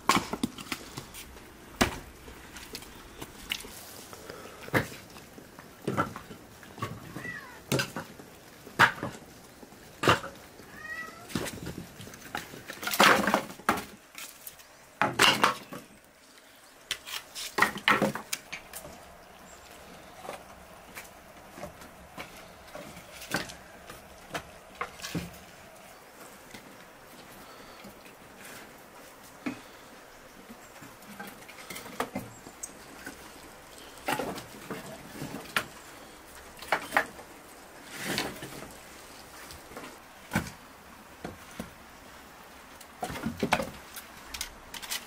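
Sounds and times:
firewood knocking and clattering: 0.0s - 10.6s, 11.3s - 14.4s, 15.0s - 15.9s, 16.9s - 28.6s, 30.4s - 41.8s, 42.8s - 45.0s
cat meowing: 7.0s - 7.6s, 10.7s - 11.4s.

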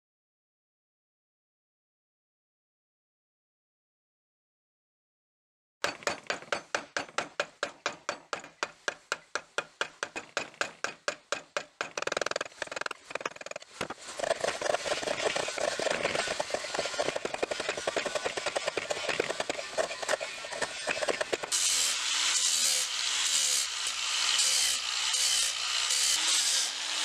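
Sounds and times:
hand tool scraping wood: 5.8s - 23.7s.

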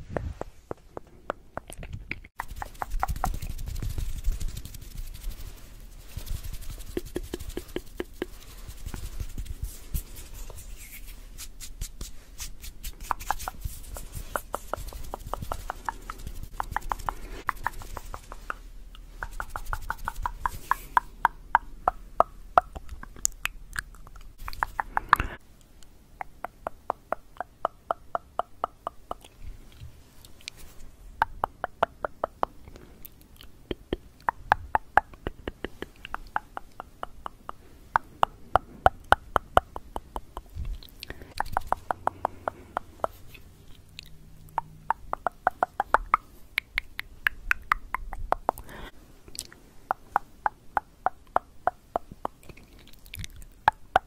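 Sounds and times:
wet mouth sounds: 0.0s - 54.0s
tongue clicking: 0.7s - 3.5s, 13.0s - 30.6s, 31.2s - 54.0s.

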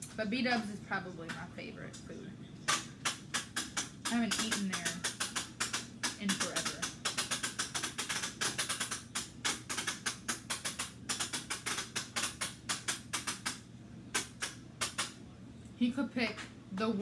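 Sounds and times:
rapid clicking and tapping: 0.0s - 15.3s.

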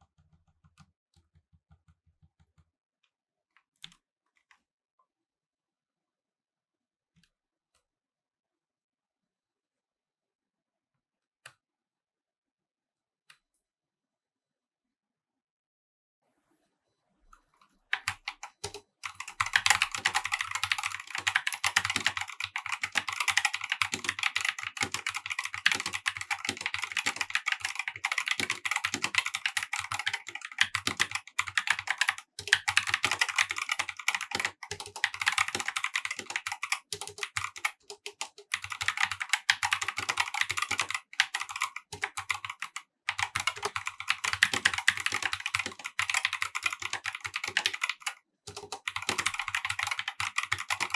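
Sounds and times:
mechanical keyboard typing: 17.9s - 50.9s.

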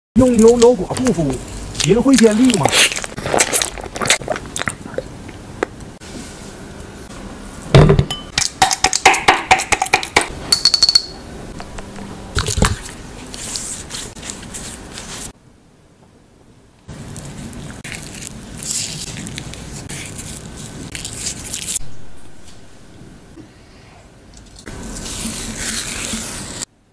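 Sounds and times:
utensil clinking against glass: 10.5s - 11.2s.

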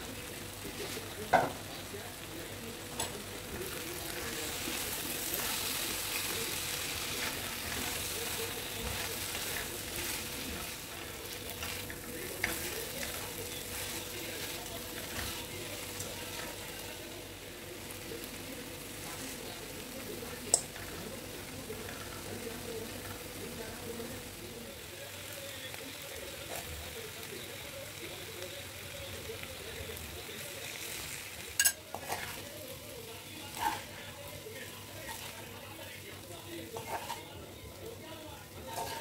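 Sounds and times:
vegetables sizzling in a pan: 0.0s - 39.0s
utensils clicking against pan: 5.2s - 16.6s, 20.4s - 20.9s, 31.5s - 32.4s.

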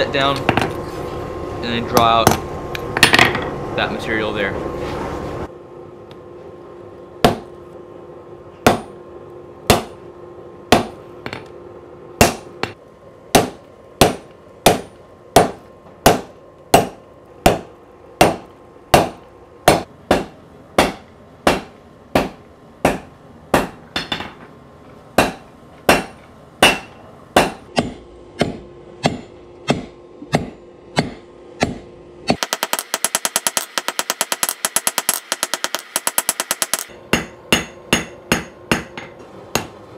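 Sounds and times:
hammer striking metal on anvil: 8.6s - 9.0s, 9.7s - 10.0s, 10.7s - 11.4s, 12.2s - 24.4s, 25.2s - 39.8s.

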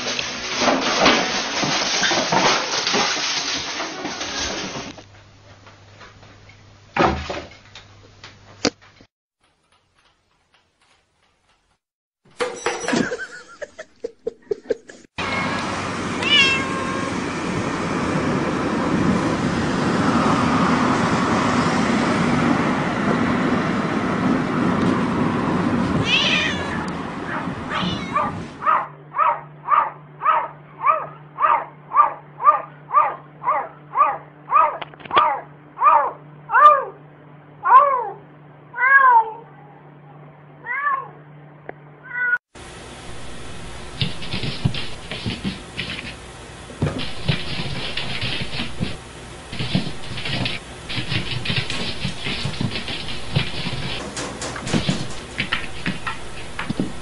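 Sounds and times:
cat meowing: 15.2s - 17.2s, 26.0s - 28.4s
road noise: 15.2s - 28.7s.

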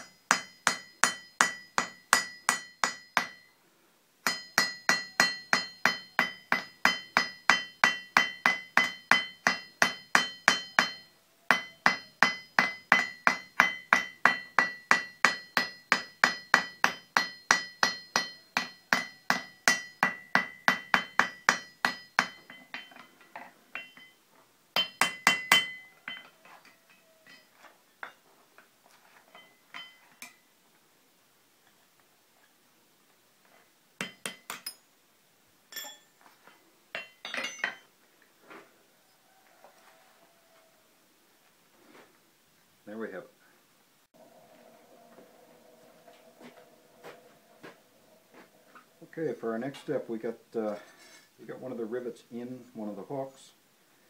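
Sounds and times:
hammer striking steel on anvil: 0.0s - 3.5s, 4.2s - 24.2s, 24.8s - 28.2s, 29.4s - 30.4s, 34.0s - 34.8s, 35.7s - 36.1s, 37.0s - 37.8s.

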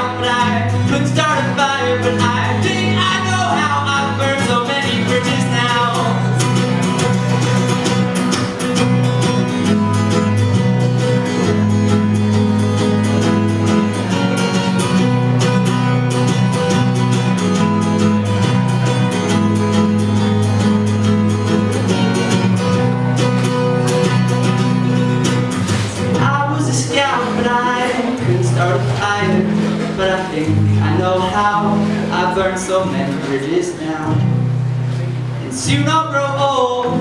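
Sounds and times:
person singing: 0.0s - 6.5s
acoustic guitar strumming: 0.0s - 37.0s.

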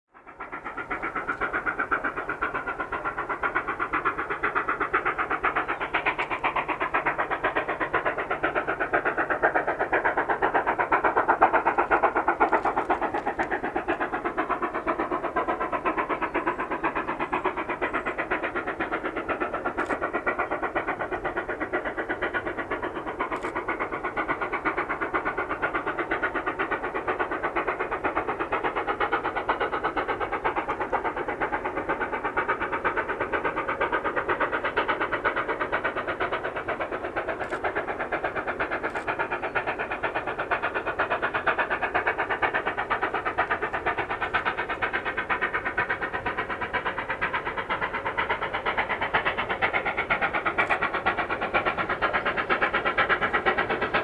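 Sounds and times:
steam locomotive chuffing: 0.1s - 54.0s.

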